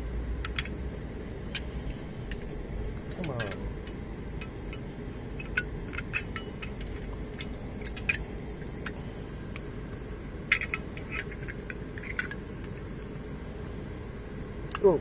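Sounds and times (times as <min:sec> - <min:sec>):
low steady hum: 0:00.0 - 0:15.0
lighter metallic clicks and clinks: 0:10.5 - 0:12.7.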